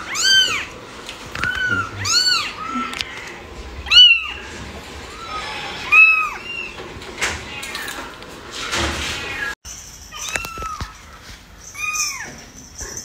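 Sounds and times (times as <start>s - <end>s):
kitten mewing: 1.4s - 3.3s.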